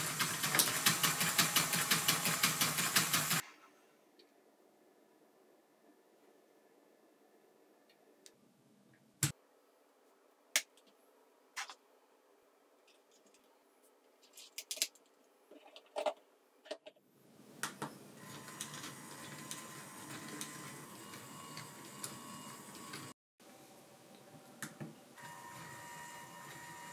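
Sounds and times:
plastic pieces clicking together: 14.2 - 16.2
steady whirring with high tone: 25.2 - 26.9.

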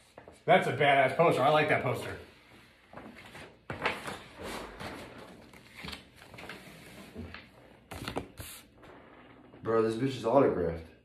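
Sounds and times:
paper rustling and crinkling: 2.9 - 8.7.

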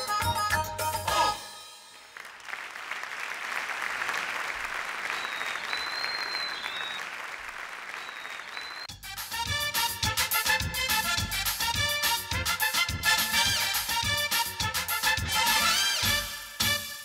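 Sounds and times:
audience applauding: 2.0 - 8.9.

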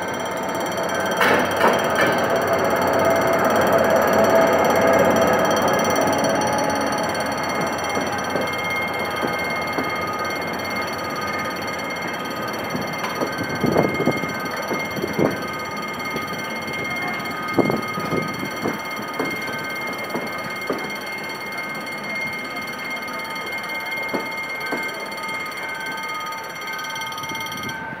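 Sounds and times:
train wheels knocking: 0.0 - 26.0
train coaches rolling past: 0.0 - 28.0.

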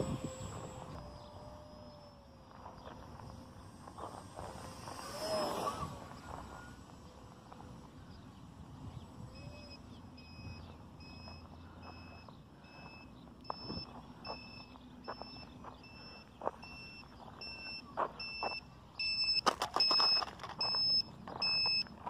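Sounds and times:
wind on microphone: 0.0 - 1.7
electric motor and propeller whine: 0.0 - 22.0
short high beeps: 9.4 - 21.9.

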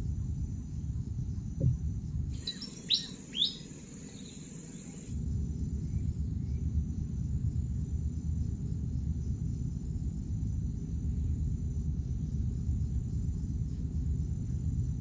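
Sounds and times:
steady low rumble: 0.0 - 15.0
bird calls sweeping down: 2.4 - 4.3
high insect buzz: 2.4 - 5.2.

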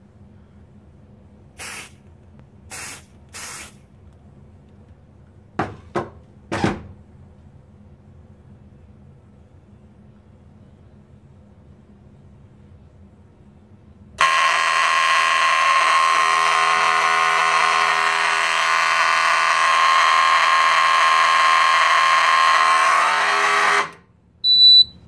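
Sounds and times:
alarm horn sounding: 14.2 - 24.1.

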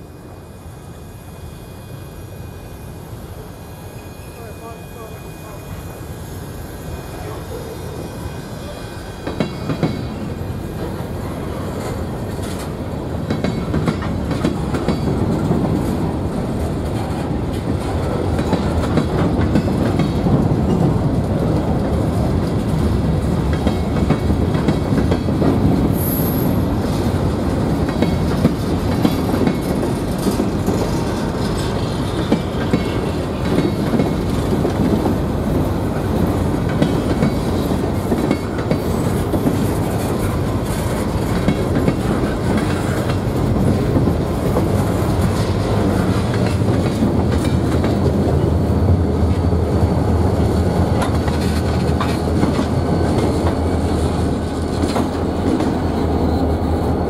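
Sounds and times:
train wheels clattering over rail joints: 9.0 - 48.6, 50.3 - 56.0.

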